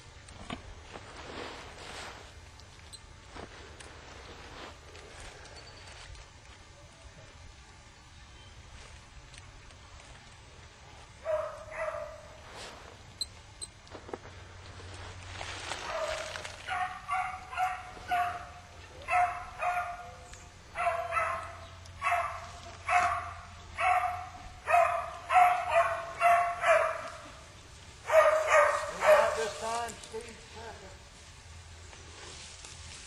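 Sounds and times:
beagles baying: 0:11.2 - 0:12.4, 0:15.8 - 0:29.8.

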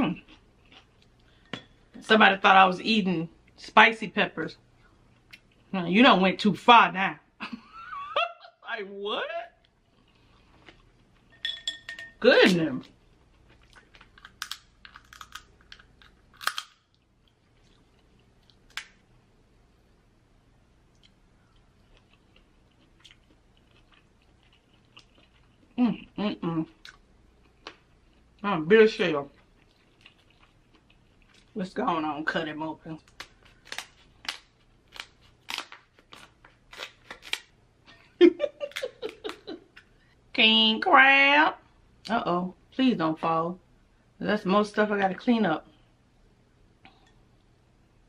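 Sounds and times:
chewing shellfish clicks: 0:13.8 - 0:17.0
crab shell snipping and cracking: 0:14.0 - 0:17.0, 0:18.6 - 0:19.0, 0:33.1 - 0:37.5
shell cracking: 0:14.0 - 0:17.0.

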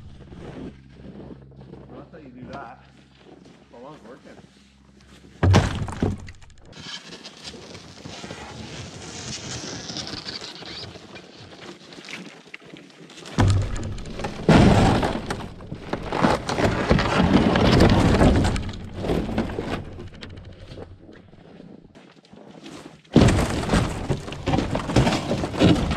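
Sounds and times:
wooden boards cracking and crashing: 0:05.4 - 0:06.8, 0:13.2 - 0:21.4, 0:23.1 - 0:25.9.

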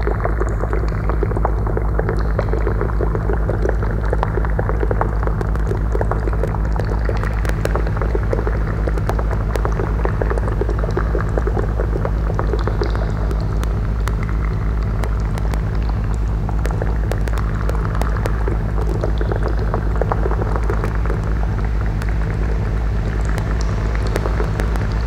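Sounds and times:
deep drone: 0:00.0 - 0:25.0
dense crackling and popping: 0:00.0 - 0:25.0
sharp clicks: 0:12.5 - 0:22.3.

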